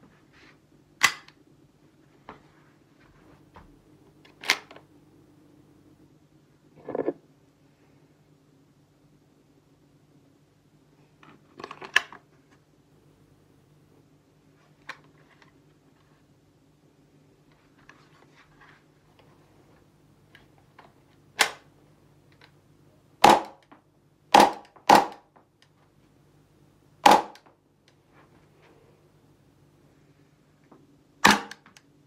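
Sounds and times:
airsoft pistol action snapping: 1.0 - 1.3, 31.2 - 31.6.

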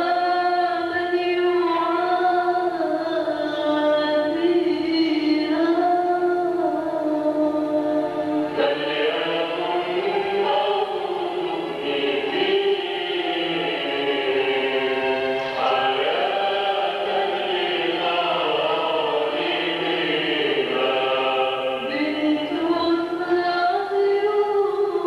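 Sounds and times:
choir singing a slow hymn: 4.2 - 25.0
solo female voice singing: 21.9 - 25.0.

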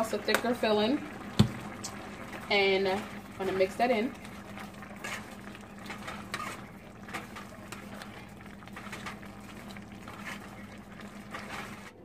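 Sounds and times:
sauce bubbling: 0.0 - 12.0
spoon scraping pan: 2.6 - 12.0.

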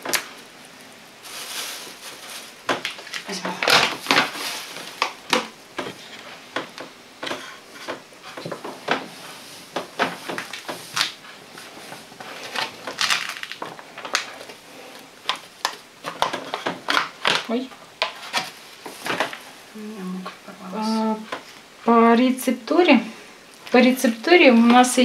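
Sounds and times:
paper flour bag rustling: 1.1 - 19.6.

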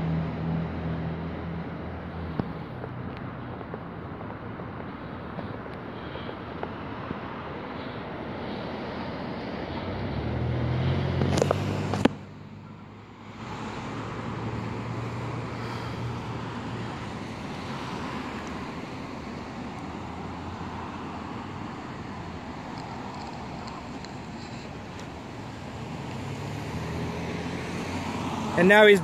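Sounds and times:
vehicles passing: 0.0 - 29.0.

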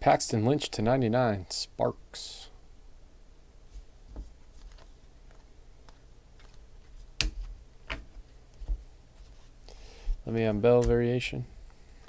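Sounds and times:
trading cards shuffled: 4.1 - 8.8.

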